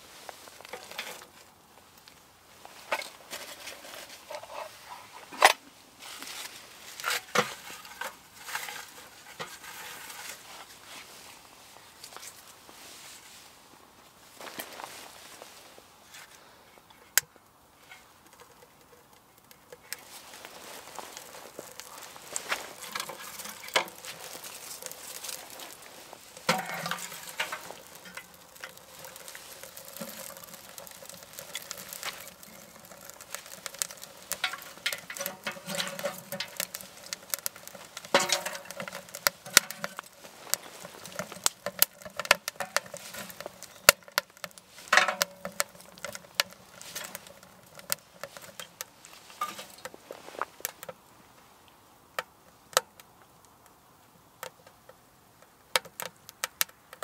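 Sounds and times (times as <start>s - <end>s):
fire crackling and popping: 0.0s - 57.0s
sharp snaps of fire: 17.1s - 57.0s.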